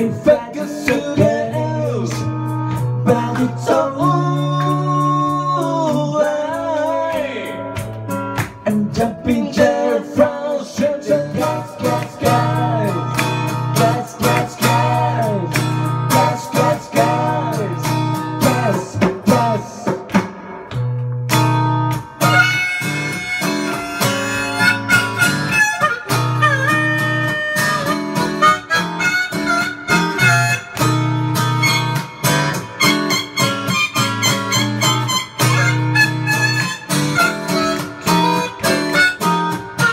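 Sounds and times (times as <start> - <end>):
strummed acoustic guitar: 0.0 - 39.9
harmonica: 22.0 - 39.9.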